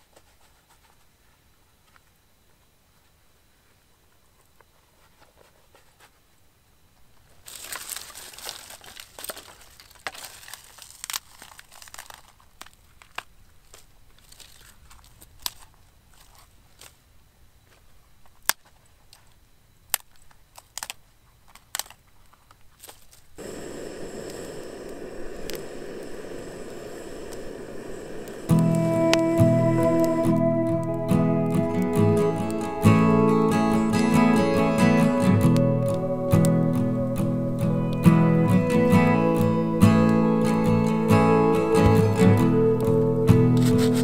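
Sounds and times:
crinkling and rustling: 0:07.0 - 0:19.4, 0:20.0 - 0:23.4, 0:43.6 - 0:44.0
gas torch hissing: 0:23.4 - 0:44.0.

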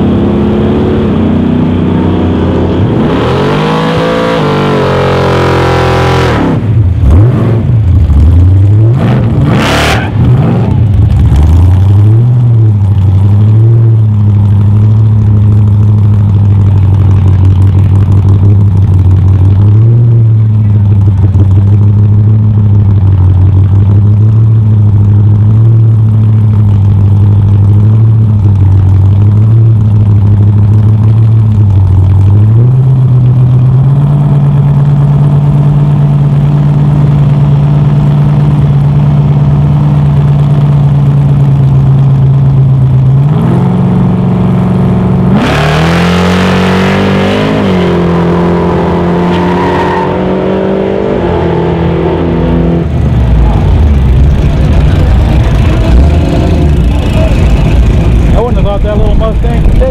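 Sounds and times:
drag racing engines revving: 0:00.0 - 0:59.9.

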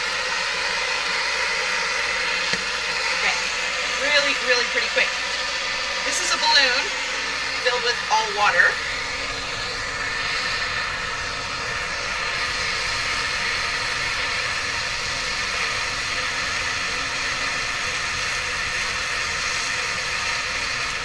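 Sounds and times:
blowtorch hissing: 0:00.0 - 0:21.0.

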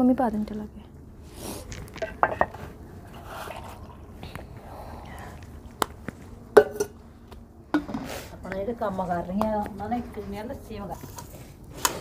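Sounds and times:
plates and spoons clinking: 0:02.0 - 0:02.7.

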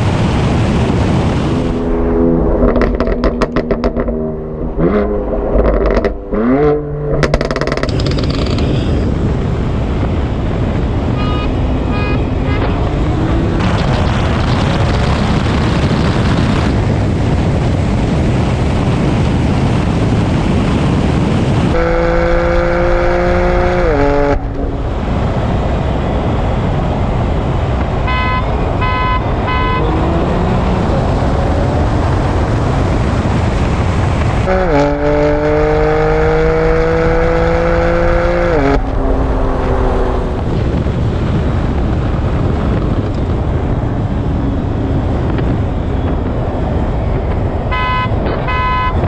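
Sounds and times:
wind and road rush: 0:00.0 - 0:49.0
car engine accelerating: 0:00.2 - 0:08.7, 0:11.7 - 0:49.0
steady horn-like tone: 0:21.7 - 0:25.1, 0:28.0 - 0:30.2, 0:47.7 - 0:49.0
short horn toots: 0:28.1 - 0:30.2, 0:47.7 - 0:49.0.

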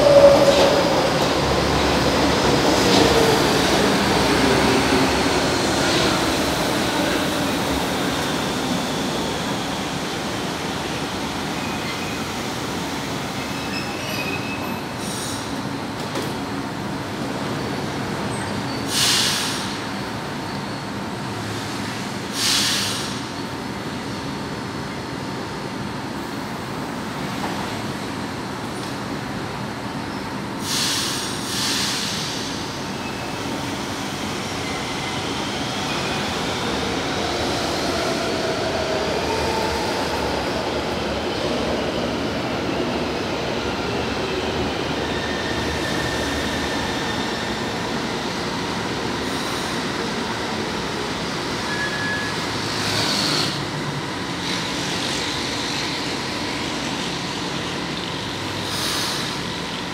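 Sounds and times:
electric train rumbling: 0:00.0 - 0:59.9
air hiss: 0:18.9 - 0:19.8, 0:22.3 - 0:23.2, 0:30.6 - 0:32.7, 0:58.6 - 0:59.5.

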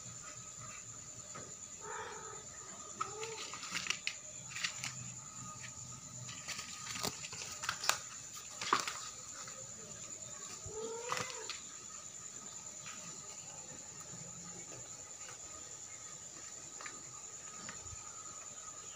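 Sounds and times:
kittens scuffling on vinyl floor: 0:03.0 - 0:11.6.

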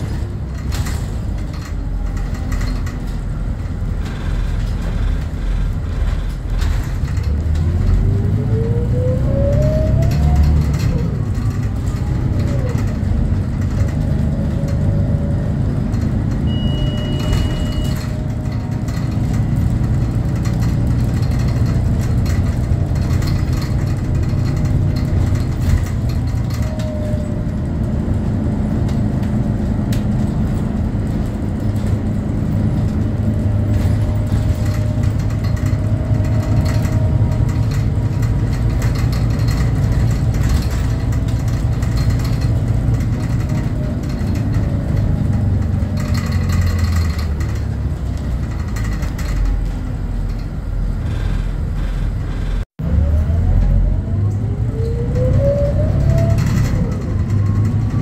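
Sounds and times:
light body rattles: 0:00.0 - 0:08.7, 0:09.4 - 0:52.7
bus engine rumble: 0:00.0 - 0:58.0
high beep: 0:16.5 - 0:18.0.

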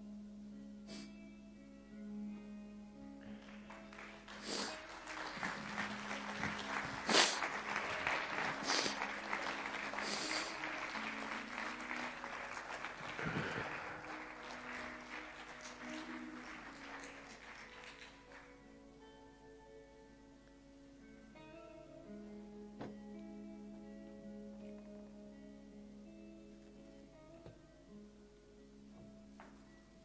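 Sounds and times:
soft background music: 0:00.0 - 0:30.0
audience applauding: 0:03.2 - 0:18.7.

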